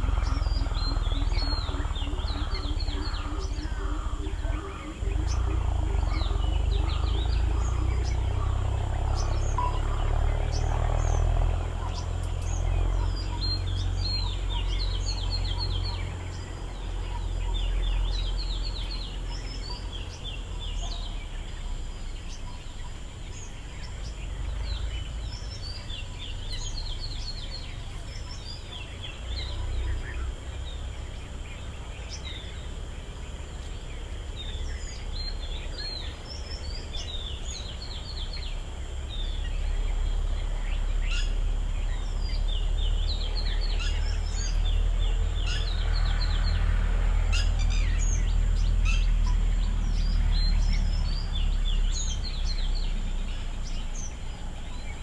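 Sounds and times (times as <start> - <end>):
low rumble: 0.0 - 28.3
birds chirping: 0.0 - 55.0
high insect drone: 0.0 - 55.0.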